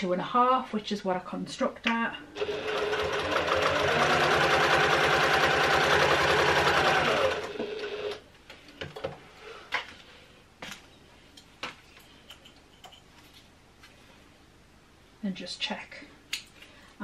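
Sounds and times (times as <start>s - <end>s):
sewing machine stitching: 2.4s - 8.2s.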